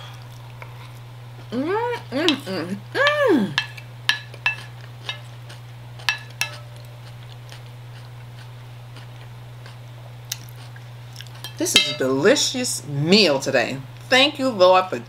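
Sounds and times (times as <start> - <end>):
cutlery clinking on plate: 3.6 - 5.2, 6.1 - 6.7, 11.4 - 12.1.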